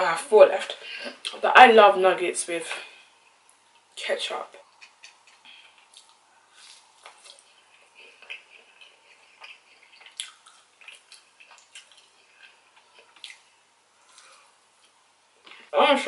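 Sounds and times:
chewing with wet mouth clicks: 4.6s - 13.5s.

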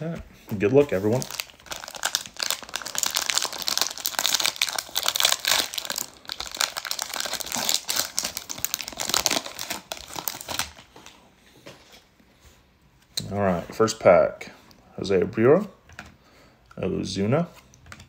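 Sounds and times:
foil wrapper crinkling: 0.5s - 10.9s.

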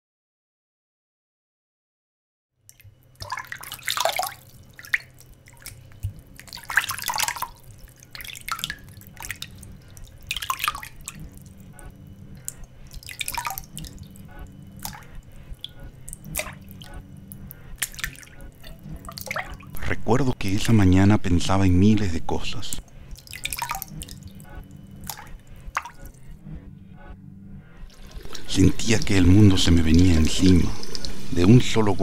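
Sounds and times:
water dripping: 2.7s - 19.9s, 22.3s - 26.3s, 27.9s - 32.0s
low hum: 4.4s - 32.0s.

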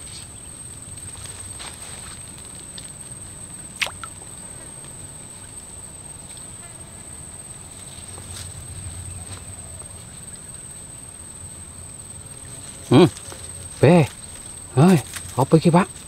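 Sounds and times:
insects whining: 0.0s - 16.0s
float plopping into water: 3.8s - 4.2s.

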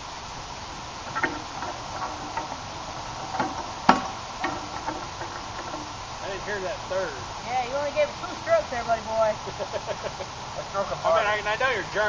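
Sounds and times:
rammer knocking in cannon bore: 1.0s - 6.5s.

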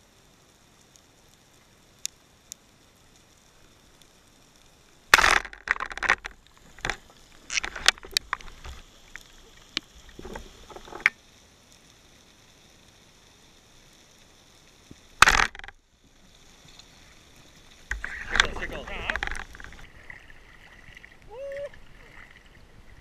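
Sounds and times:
diving gear clicking and knocking: 5.2s - 8.7s, 10.2s - 11.2s, 15.2s - 15.8s, 17.9s - 19.8s.

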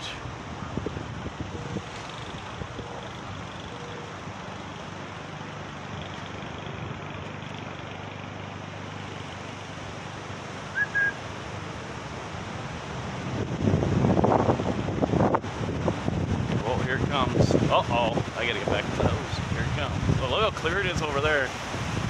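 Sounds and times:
road traffic: 0.0s - 22.0s
wind rumble on microphone: 0.0s - 22.0s
short high chirp: 10.7s - 11.2s.

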